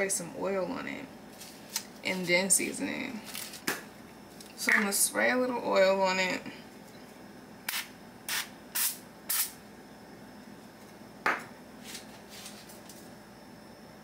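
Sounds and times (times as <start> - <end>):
cooking oil spray hissing: 7.7 - 9.6.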